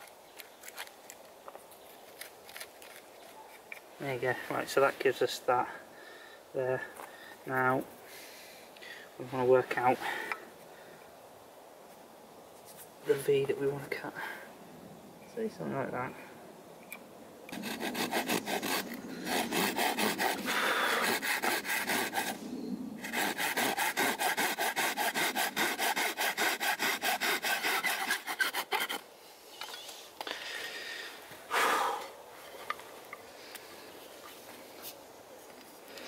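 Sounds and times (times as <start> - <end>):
hand saw cutting wood: 17.5 - 22.4, 23.0 - 29.0.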